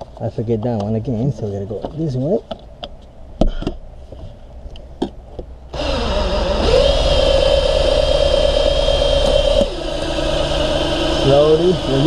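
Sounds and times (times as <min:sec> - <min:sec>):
cordless drill whining: 0:05.7 - 0:12.0.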